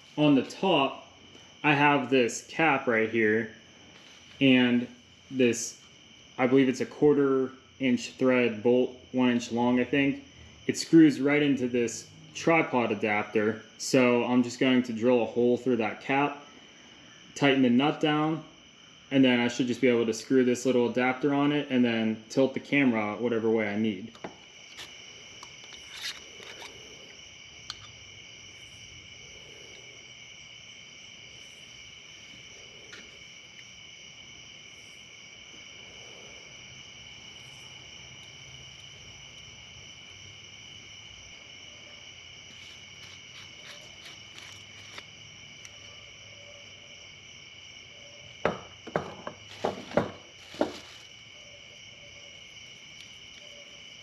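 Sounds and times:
night insects trilling: 0.0 - 54.0
cans and pipe knocking: 48.5 - 50.8.

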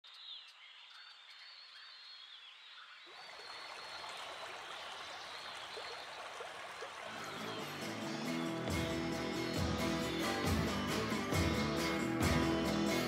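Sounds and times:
birds chirping: 0.0 - 13.0
running water rushing: 3.1 - 13.0.

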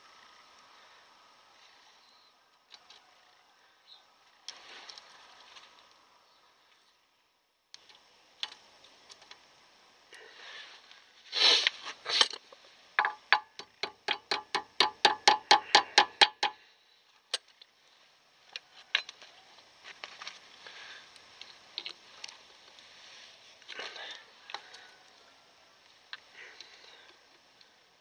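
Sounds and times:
brake drum ticking as it spins: 13.0 - 16.6.

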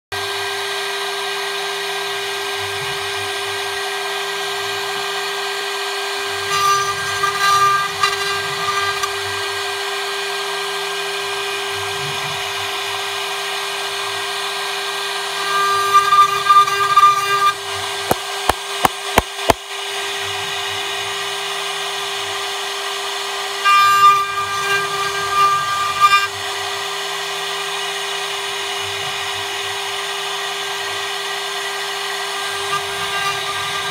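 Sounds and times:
router bit cutting wood: 0.2 - 33.9
router spindle whine: 0.2 - 33.9.

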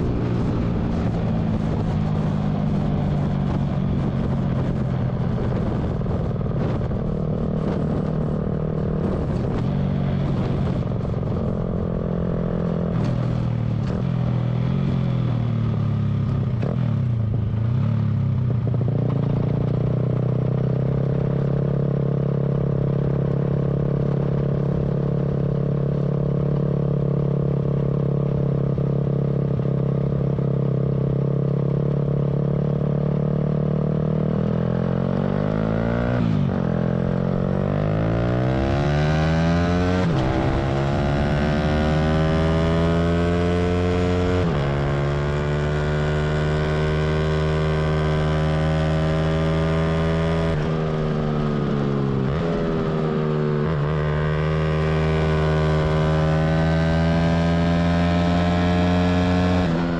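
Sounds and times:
small motorcycle engine revving: 33.8 - 59.9.

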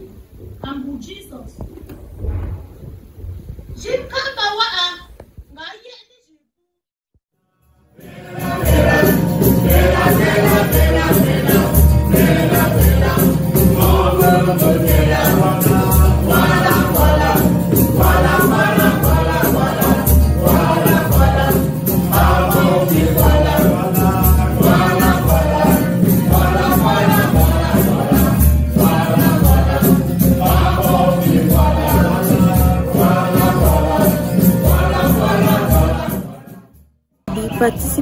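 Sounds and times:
acoustic guitar: 7.4 - 38.0
group of voices singing: 7.8 - 38.0
hand drum beat: 8.3 - 36.5.

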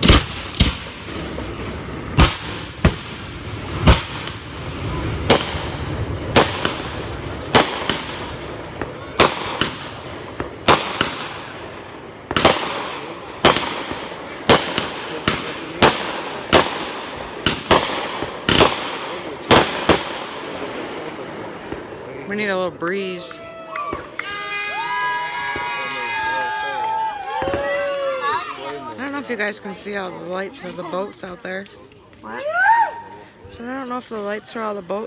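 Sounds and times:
fireworks bangs: 0.0 - 35.0.

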